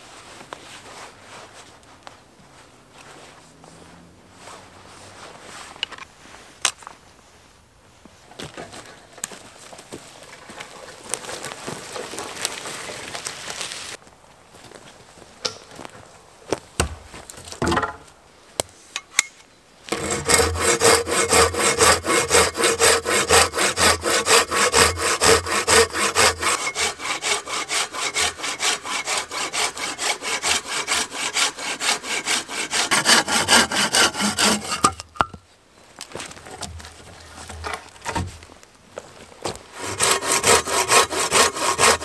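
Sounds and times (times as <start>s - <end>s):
hand saw cutting wood: 19.9s - 35.1s, 39.7s - 42.0s.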